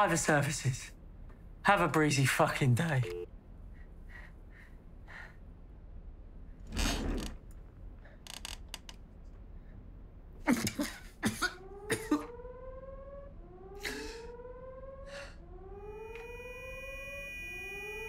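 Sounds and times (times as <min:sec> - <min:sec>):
siren rising in pitch: 0:11.6 - 0:18.0.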